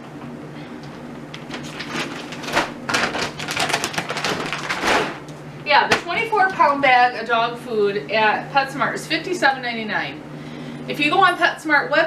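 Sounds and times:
steady low hum: 0.0s - 12.0s
plastic bag crinkling: 1.4s - 5.3s.

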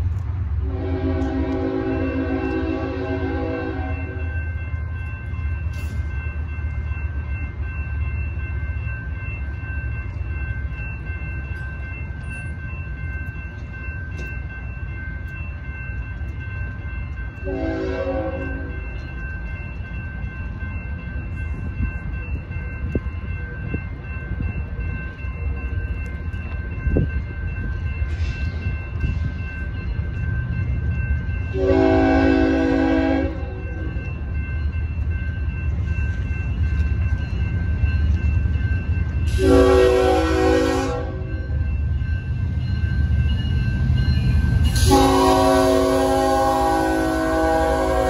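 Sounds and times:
railroad crossing bell ringing: 0.0s - 48.0s
train horn blast: 0.6s - 4.2s, 17.4s - 18.8s, 31.5s - 33.6s, 39.3s - 41.3s, 44.7s - 48.0s.

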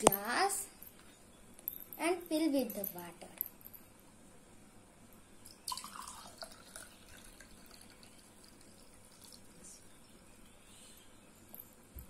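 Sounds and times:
water pouring into a glass: 5.5s - 10.0s.

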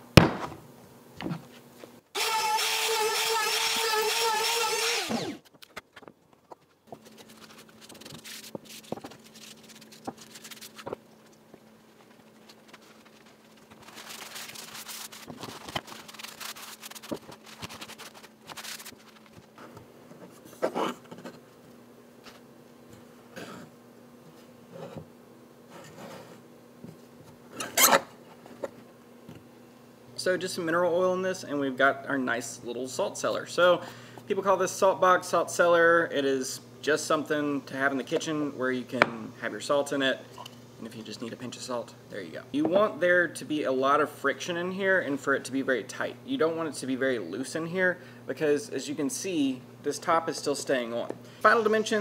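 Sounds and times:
faint steady hum: 0.0s - 52.0s
router running and spinning down: 2.2s - 5.4s
hands rubbing wood: 6.4s - 21.2s.

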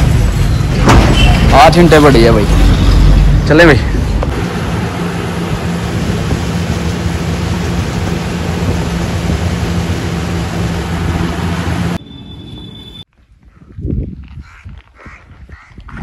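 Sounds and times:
road and wind noise: 0.0s - 16.0s
tractor engine running: 4.0s - 12.0s.

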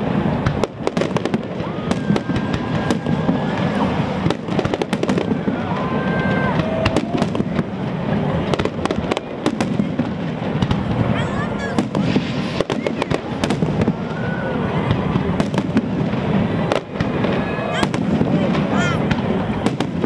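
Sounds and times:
fireworks bursting: 0.0s - 20.0s.

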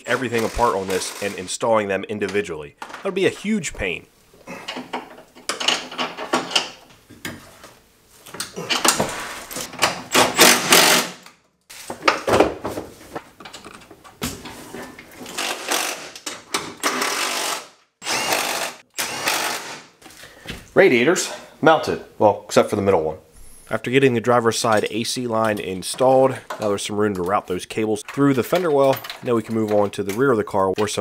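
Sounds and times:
cordless power tool driving bolts: 0.1s - 1.4s, 9.6s - 11.3s, 15.2s - 19.9s.

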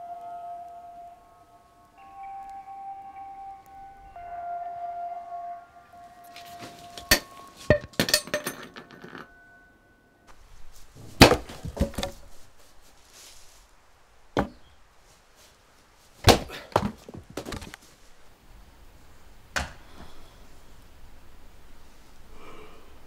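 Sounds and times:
axe chopping firewood: 11.2s - 12.2s, 14.4s - 14.6s, 16.2s - 17.6s.

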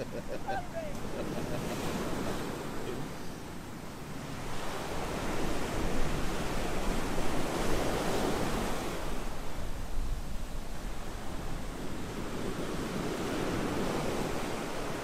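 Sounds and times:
ocean surf breaking: 0.0s - 9.2s.

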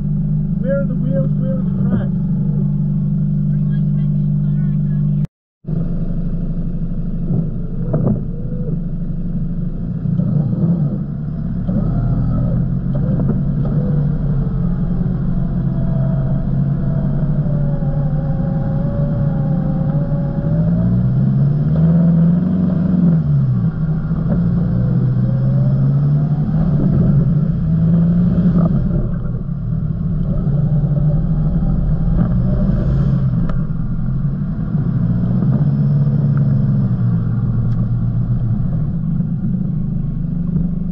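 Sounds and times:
car engine running at low revs: 0.0s - 40.9s.

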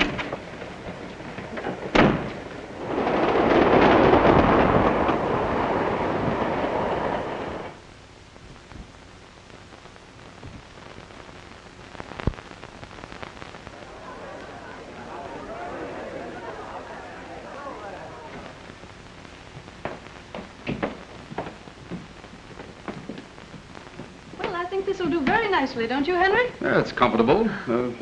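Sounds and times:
train rushing rumble: 0.8s - 7.8s.

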